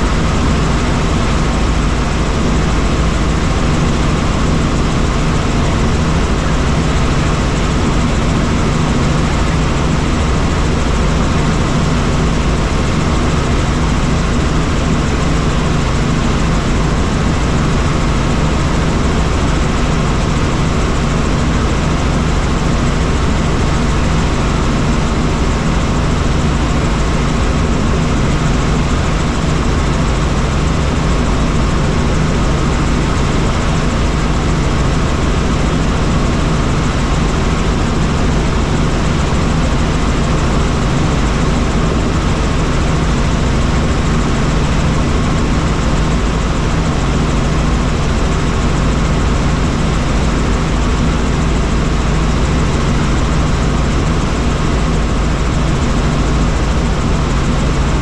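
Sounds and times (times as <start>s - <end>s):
helicopter engine and rotor: 0.0s - 58.0s.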